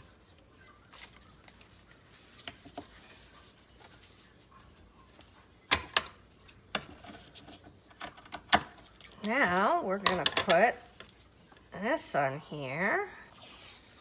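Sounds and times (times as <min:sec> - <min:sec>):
papers being handled: 0:00.0 - 0:05.5.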